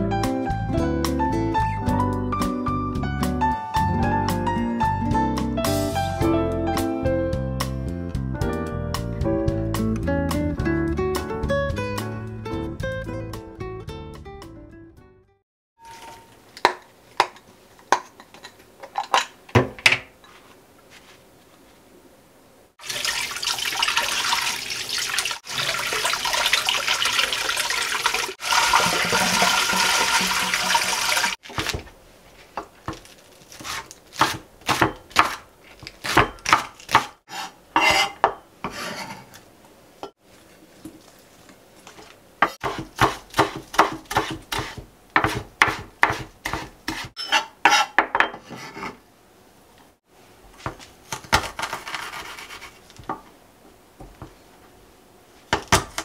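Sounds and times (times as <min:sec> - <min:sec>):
tap water running into sink: 0:22.8 - 0:31.4
knife chopping on wooden board: 0:33.6 - 0:35.4, 0:36.0 - 0:39.0, 0:42.4 - 0:48.9.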